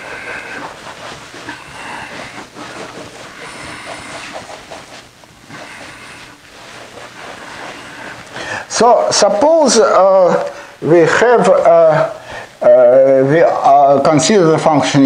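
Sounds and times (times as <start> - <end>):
eraser rubbing whiteboard: 0.0 - 10.0.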